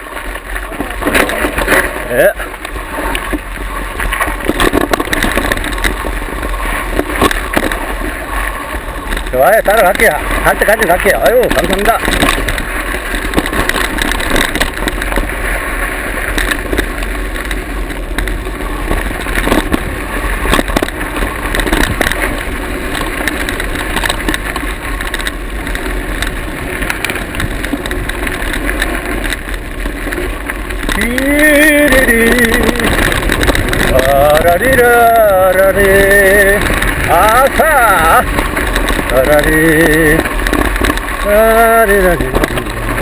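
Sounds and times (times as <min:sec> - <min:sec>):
bike rattling over bumps: 0:00.0 - 0:43.0
bike tyre and wind rush: 0:00.0 - 0:43.0
man singing: 0:30.9 - 0:33.0, 0:33.9 - 0:38.3, 0:39.1 - 0:40.4, 0:41.2 - 0:43.0.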